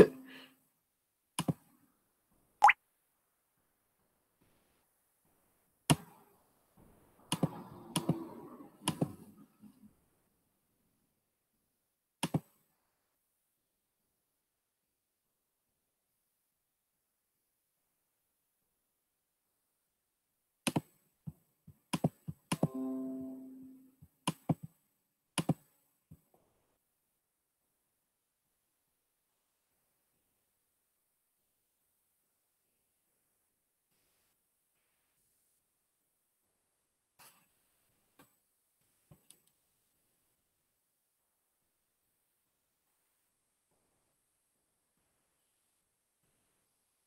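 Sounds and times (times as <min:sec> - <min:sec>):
pitched ringing note: 0:22.7 - 0:23.8.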